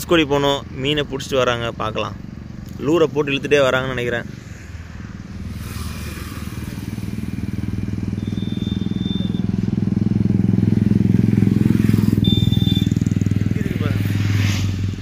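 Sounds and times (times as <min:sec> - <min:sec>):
vehicle engine pulsing: 0:05.4 - 0:15.0.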